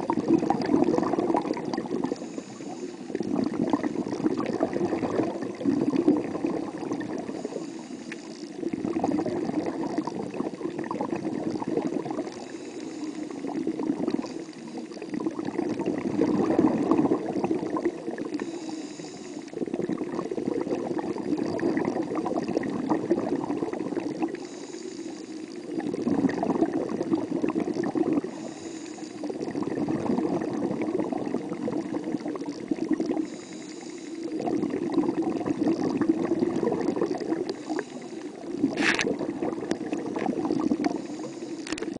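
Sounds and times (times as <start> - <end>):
muffled underwater bubbling: 0.0 - 41.9
brief hiss: 38.7 - 39.0.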